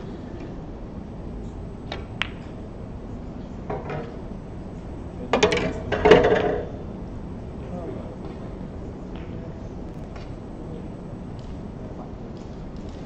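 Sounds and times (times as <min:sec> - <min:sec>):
snooker balls clicking: 0:01.9 - 0:02.6, 0:05.4 - 0:06.7, 0:11.3 - 0:11.6, 0:12.3 - 0:13.0.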